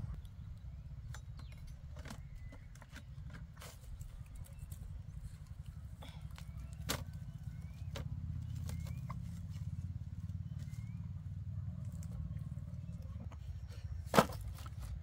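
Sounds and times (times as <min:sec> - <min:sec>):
steady low rumble: 0:00.0 - 0:15.0
sugarcane knocking together: 0:14.1 - 0:14.9.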